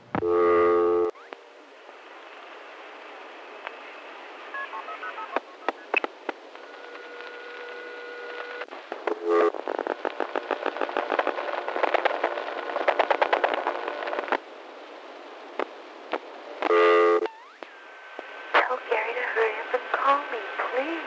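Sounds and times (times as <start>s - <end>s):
steady telephone tone: 0.2s - 1.3s, 3.8s - 6.0s, 6.6s - 9.6s, 16.6s - 18.0s.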